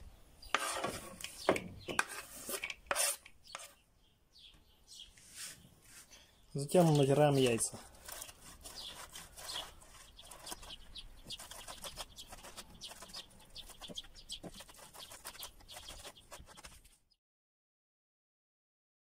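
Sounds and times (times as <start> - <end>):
eggs rasping on metal grater: 6.8 - 16.8.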